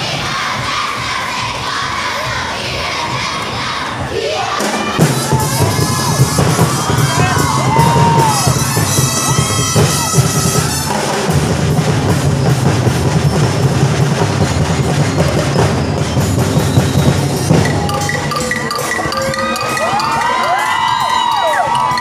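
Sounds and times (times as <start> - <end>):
children shouting: 0.0 - 11.0, 19.0 - 22.0
percussion band drumming: 0.0 - 22.0.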